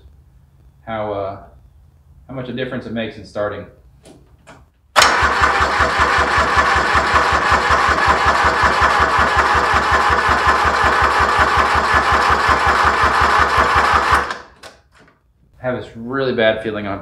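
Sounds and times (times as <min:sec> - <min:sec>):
electric starter cranking diesel engine: 0:05.0 - 0:14.6.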